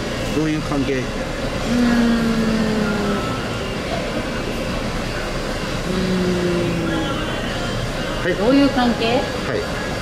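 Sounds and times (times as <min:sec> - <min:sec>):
restaurant background rumble: 0:00.0 - 0:10.0
person humming: 0:01.7 - 0:03.4, 0:05.9 - 0:07.2.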